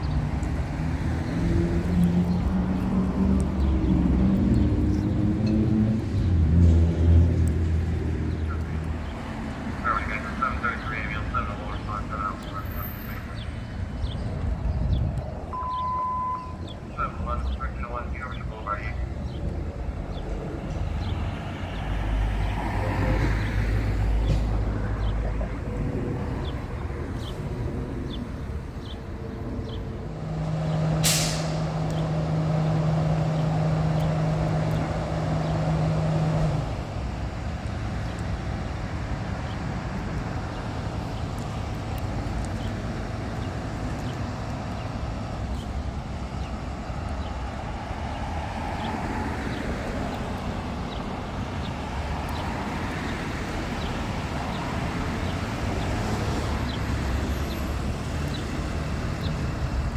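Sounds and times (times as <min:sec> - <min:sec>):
ambulance engine running: 0:08.3 - 0:14.5, 0:15.5 - 0:21.2
air brakes hissing: 0:31.0 - 0:31.6.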